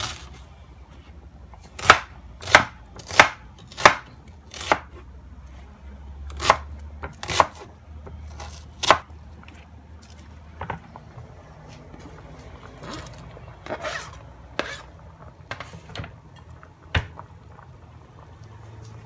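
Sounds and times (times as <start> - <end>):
knife chopping onion on plastic board: 1.8 - 5.0, 6.4 - 9.1.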